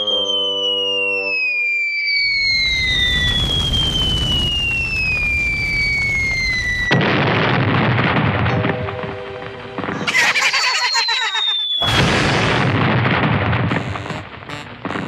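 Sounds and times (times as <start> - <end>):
descending whistle: 0.0 - 7.0, 10.1 - 12.1
loud explosion: 2.3 - 15.0.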